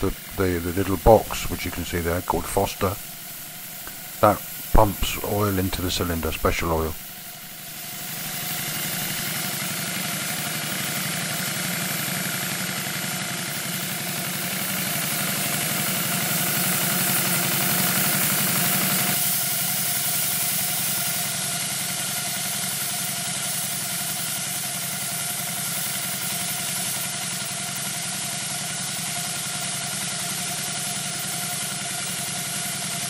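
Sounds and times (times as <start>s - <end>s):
steam hissing: 0.0s - 12.0s, 13.7s - 24.6s
steam engine exhaust chuffs: 0.0s - 33.0s.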